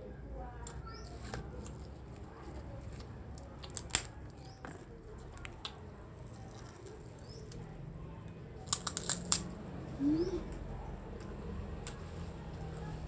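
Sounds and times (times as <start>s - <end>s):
crunches of cracker being bitten: 3.3s - 7.7s, 8.6s - 9.6s.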